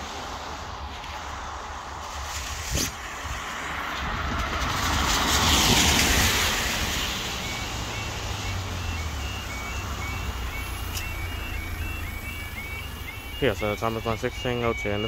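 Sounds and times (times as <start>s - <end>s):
van tyres hissing on wet road: 4.5s - 8.8s
level crossing two-tone alarm: 6.0s - 15.0s.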